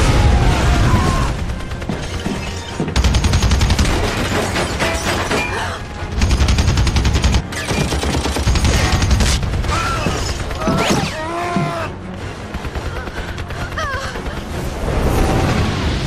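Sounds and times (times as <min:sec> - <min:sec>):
heavy machine gun automatic fire: 0:06.2 - 0:10.7.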